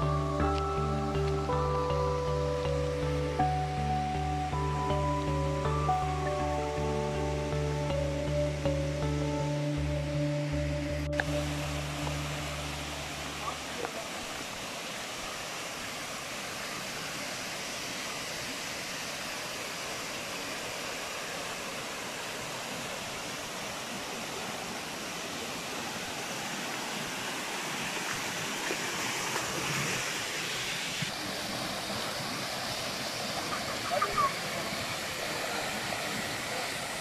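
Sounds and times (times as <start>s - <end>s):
water rushing over rocks: 11.1s - 37.0s.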